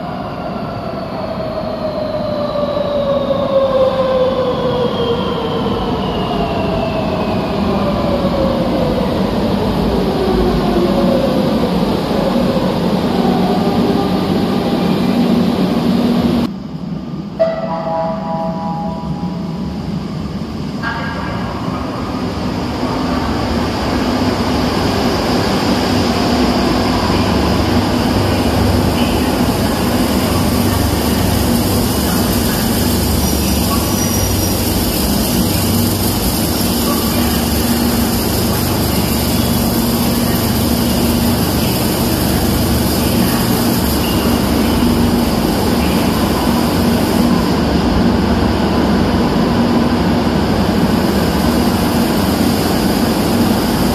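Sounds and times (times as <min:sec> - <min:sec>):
train wheels on rails: 0:17.3 - 0:53.9
train motor hum: 0:23.2 - 0:53.9.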